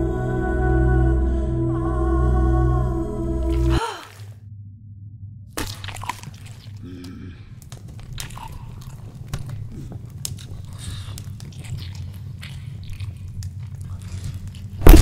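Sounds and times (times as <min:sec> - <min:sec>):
low hum: 0:00.0 - 0:08.2, 0:09.2 - 0:15.0
biting and chewing meat: 0:05.6 - 0:15.0.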